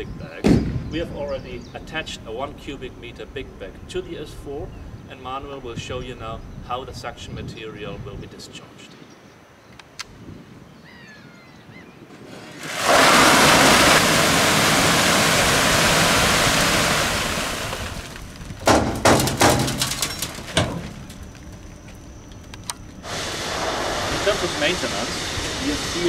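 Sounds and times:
material pouring in a rush: 12.3 - 21.3, 23.0 - 26.0
sharp knocks and rattles: 17.8 - 21.8.

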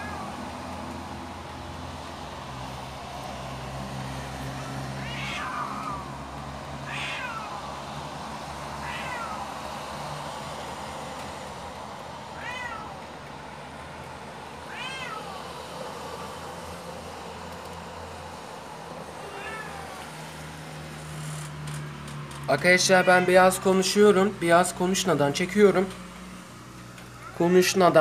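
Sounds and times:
cats yowling: 0.0 - 0.5, 4.6 - 7.8, 8.8 - 9.6, 12.3 - 13.1, 14.7 - 15.5, 19.2 - 20.2, 22.6 - 24.0, 27.2 - 27.8.

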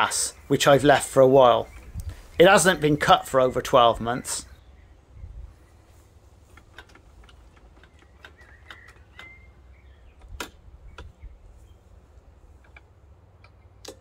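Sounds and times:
sharp clicks: 6.5 - 11.4, 12.6 - 14.0.

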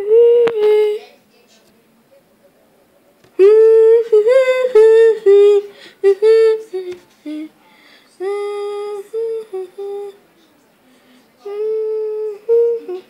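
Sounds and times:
high voice singing wordless tune: 3.4 - 7.6, 8.2 - 10.2, 11.4 - 13.0.

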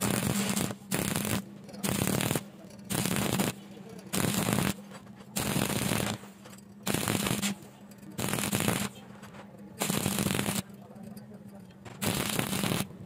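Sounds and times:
welding arc crackling: 0.0 - 4.8, 5.4 - 9.0, 9.8 - 10.7, 12.0 - 13.0.

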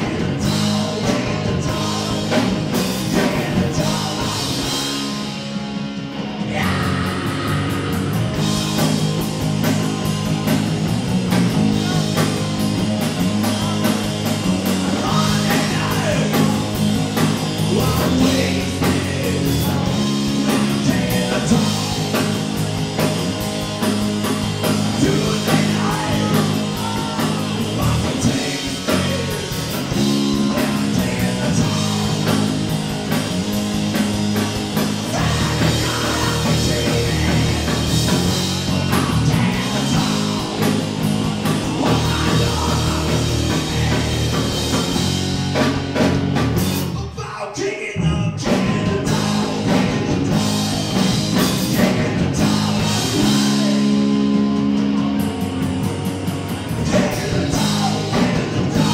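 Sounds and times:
person singing: 0.0 - 5.0, 6.4 - 8.2, 13.4 - 16.8, 24.8 - 32.9, 35.0 - 40.8, 41.4 - 44.8, 51.6 - 54.5, 56.7 - 58.9
live rock band playing: 0.0 - 47.2, 48.3 - 58.9.

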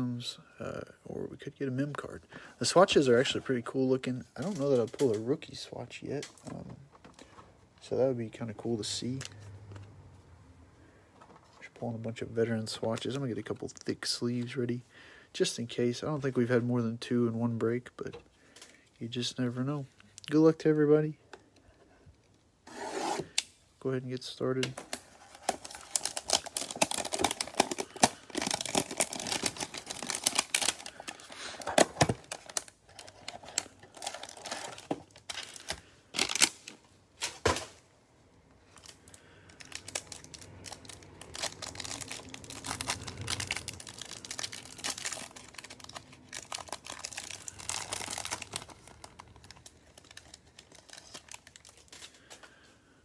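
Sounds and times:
plastic wrap crinkling and tearing: 24.8 - 37.6, 38.7 - 52.4.

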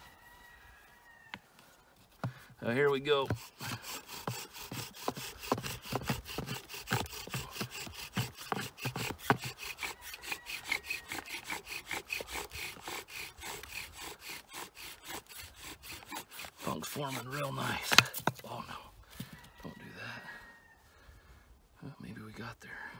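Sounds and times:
bow drill wood rubbing: 1.3 - 19.5.

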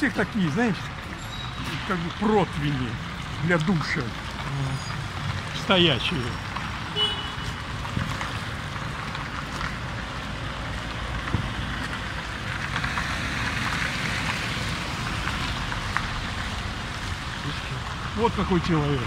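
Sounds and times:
passing traffic: 0.0 - 19.0.

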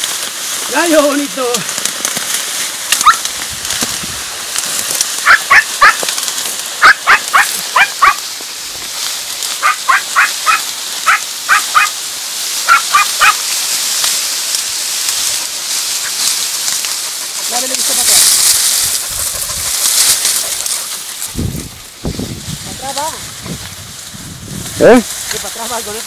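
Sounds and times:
steady high hiss: 0.0 - 26.0
hounds yelping: 2.9 - 3.4, 5.2 - 6.1, 6.8 - 8.3, 9.5 - 12.0, 12.6 - 13.5, 15.4 - 17.8, 18.8 - 21.4.

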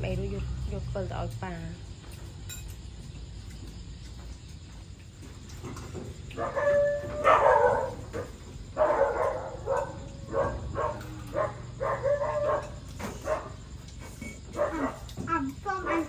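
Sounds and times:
animal yelps and whines: 6.4 - 13.5.

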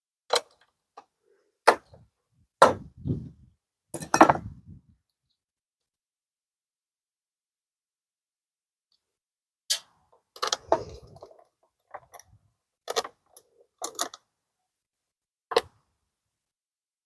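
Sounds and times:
metal terminals clicking and rattling: 4.0 - 4.4.

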